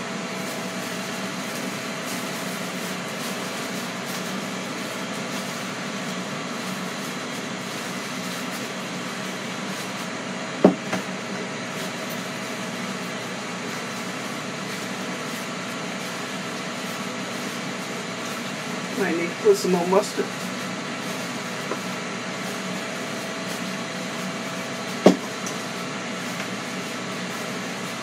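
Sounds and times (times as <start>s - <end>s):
steady mechanical hum: 0.0s - 28.0s.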